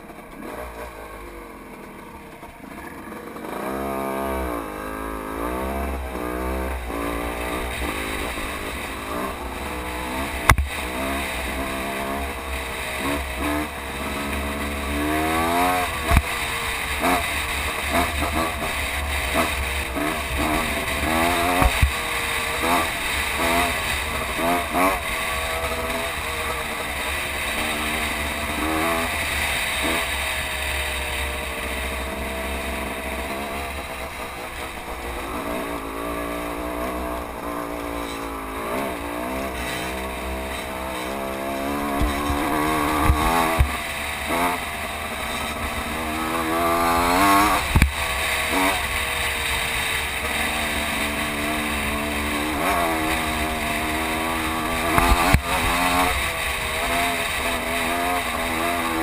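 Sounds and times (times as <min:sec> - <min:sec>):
small off-road engine revving: 0:00.0 - 0:59.0
sharp knocks: 0:10.4 - 0:10.7.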